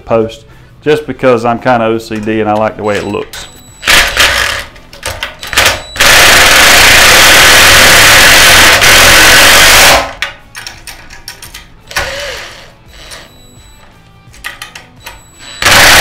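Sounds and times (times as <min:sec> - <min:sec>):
impact driver hammering: 0:05.5 - 0:10.2, 0:15.6 - 0:16.0
tools clicking and rattling: 0:10.1 - 0:11.8, 0:14.3 - 0:15.2.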